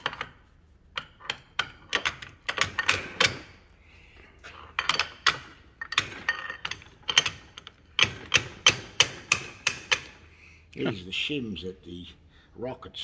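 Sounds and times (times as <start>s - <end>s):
metallic knocks and clinks: 4.8s - 10.2s.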